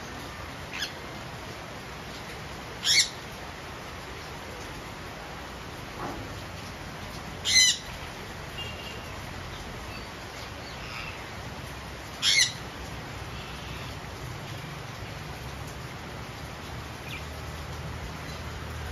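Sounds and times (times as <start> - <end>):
falling rain: 0.0 - 18.9
parakeet squawks: 0.7 - 1.0, 2.8 - 3.2, 7.4 - 7.9, 12.2 - 12.6.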